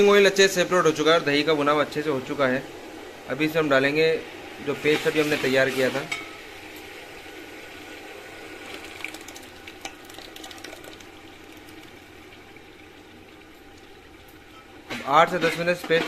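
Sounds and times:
oil sizzling in metal pan: 3.2 - 16.0.

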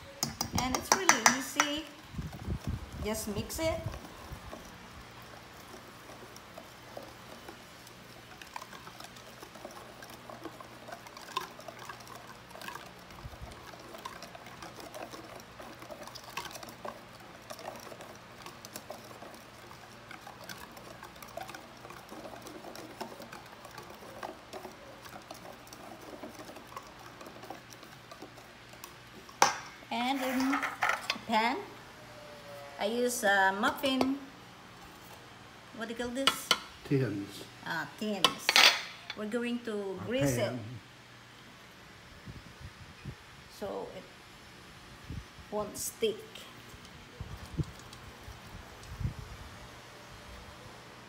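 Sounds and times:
whisk beating batter in metal bowl: 0.2 - 31.2.

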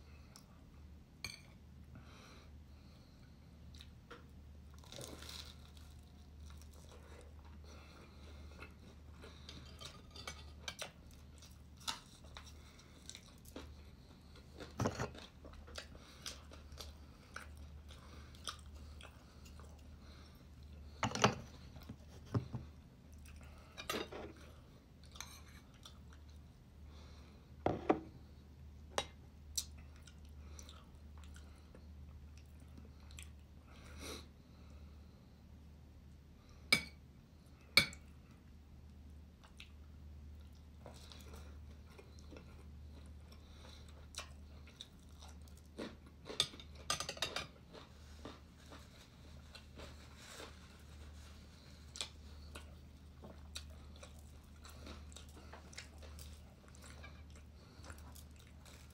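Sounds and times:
chewing: 3.7 - 20.7, 40.4 - 58.9.

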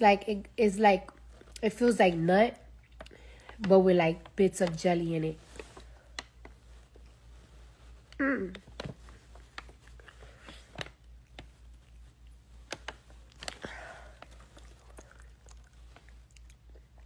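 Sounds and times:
mouth chewing sounds: 2.7 - 3.4, 9.9 - 17.0.

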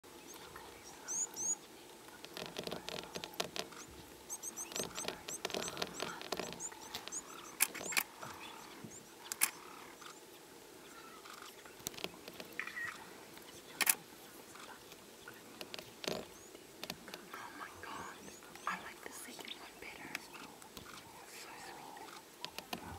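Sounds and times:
dry clicks and crackles: 2.1 - 8.5, 9.2 - 10.2, 11.3 - 17.4, 22.0 - 22.9
leopard cub squeaky calls: 3.0 - 10.2, 10.8 - 11.7, 12.5 - 13.9.

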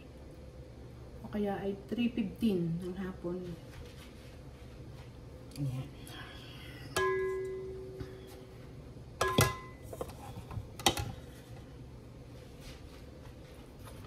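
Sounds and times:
jug knocking metal bowl: 9.2 - 9.8.

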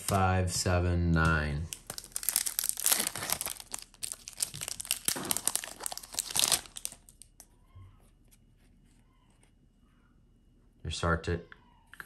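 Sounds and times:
foil wrapper crinkling: 1.6 - 7.5.

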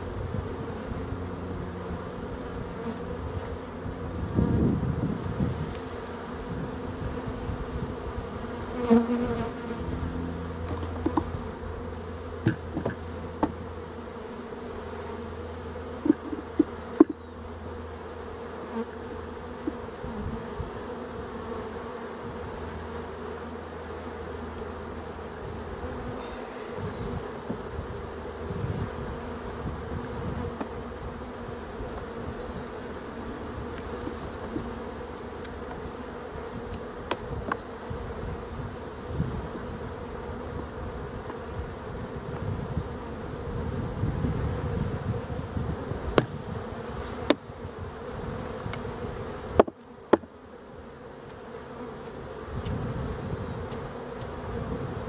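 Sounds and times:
bees humming: 0.0 - 55.0
hive tool knocking on wood: 10.7 - 11.4, 12.4 - 13.6, 16.0 - 17.2, 19.6 - 19.8, 27.4 - 27.7, 46.1 - 46.4, 47.2 - 47.5, 49.6 - 50.3.

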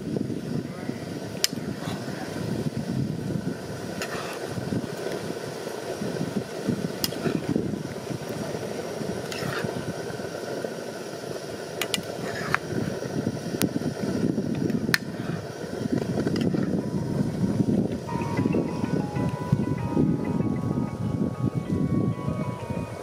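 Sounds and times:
gas stove burner rushing: 0.0 - 20.4
metal ladle scraping pan: 4.0 - 4.4, 9.3 - 9.7, 12.2 - 12.6.

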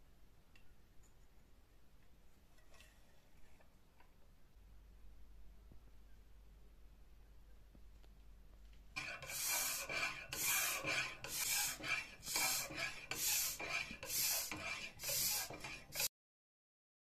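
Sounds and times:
bike pump rush of air: 9.0 - 16.1.

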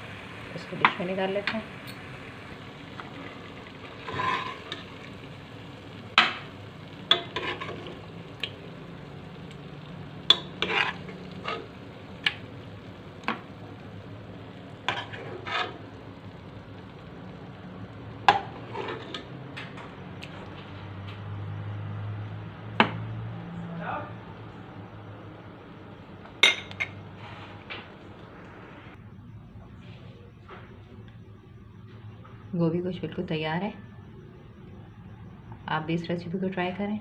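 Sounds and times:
steady low hiss: 0.0 - 19.2
metal spoon scraping a pot: 3.9 - 4.9, 7.1 - 8.0, 10.2 - 11.8, 14.8 - 16.0, 18.3 - 19.4.

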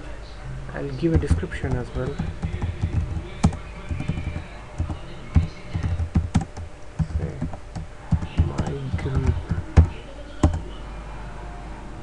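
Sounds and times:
typing on computer keyboard: 1.2 - 10.6.

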